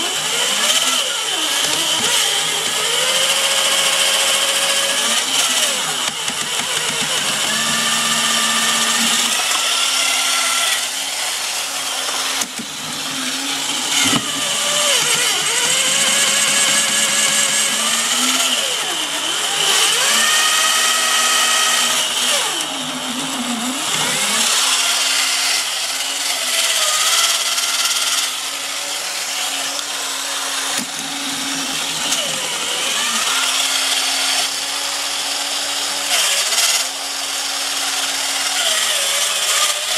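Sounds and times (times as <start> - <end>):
toy motor and gearbox whirring: 0.0 - 10.9.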